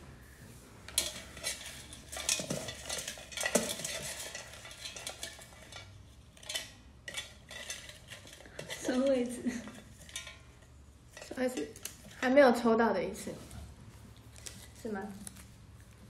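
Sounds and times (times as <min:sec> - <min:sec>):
hands rummaging in metal buckets: 0:00.8 - 0:12.4.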